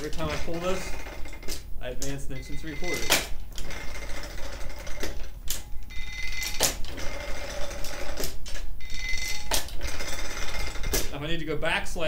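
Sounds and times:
metal clanks and ratchet clicks: 0:00.0 - 0:05.6, 0:06.3 - 0:11.2.

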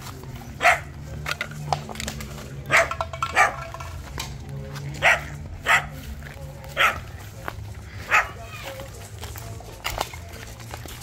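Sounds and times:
dog barking: 0:00.6 - 0:00.9, 0:02.7 - 0:03.7, 0:05.0 - 0:06.0, 0:06.8 - 0:07.1, 0:08.0 - 0:08.6.

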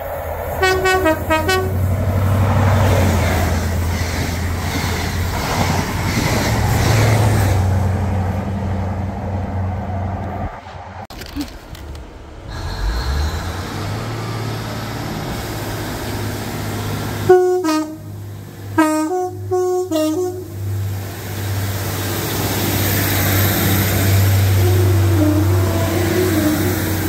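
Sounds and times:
locomotive engine droning: 0:00.0 - 0:27.0
locomotive two-tone horn: 0:00.5 - 0:01.9, 0:17.2 - 0:21.0, 0:24.1 - 0:27.0.

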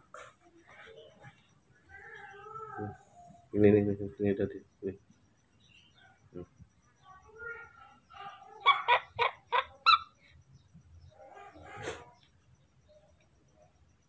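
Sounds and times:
baby monkey calling: 0:08.5 - 0:10.3.

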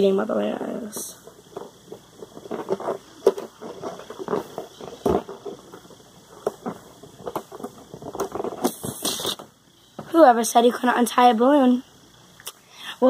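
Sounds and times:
rubbing on balloon rubber: 0:02.2 - 0:09.5.

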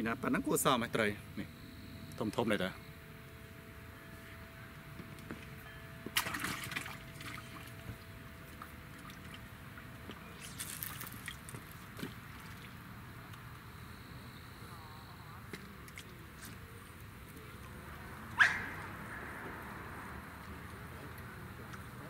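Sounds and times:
faint water sounds: 0:00.5 - 0:22.0
fish splashing into water: 0:06.2 - 0:07.7, 0:10.3 - 0:12.8.

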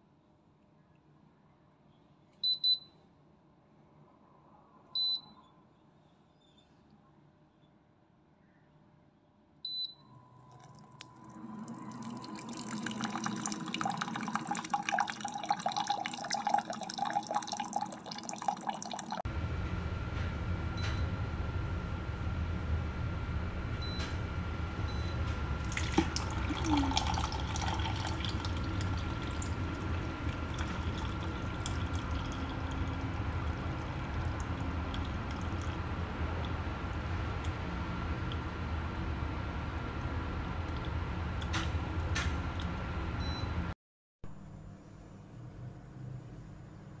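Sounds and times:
water pouring into cup: 0:10.5 - 0:19.2, 0:25.6 - 0:36.6.

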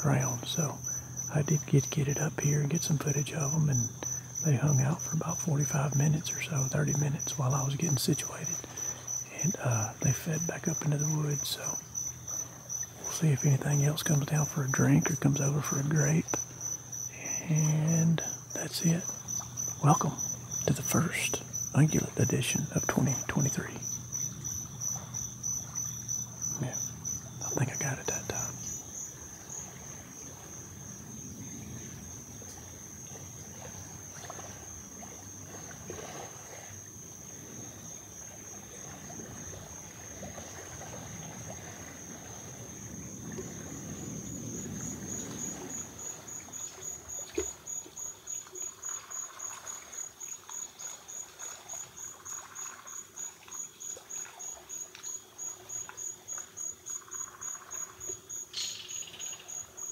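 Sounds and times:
crickets trilling: 0:00.0 - 0:59.9.

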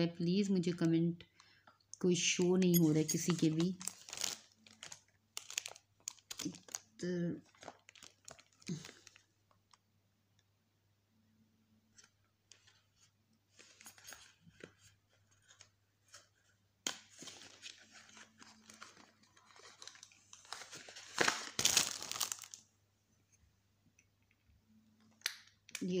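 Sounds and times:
plastic packaging crinkling: 0:02.2 - 0:09.8, 0:16.9 - 0:22.6.

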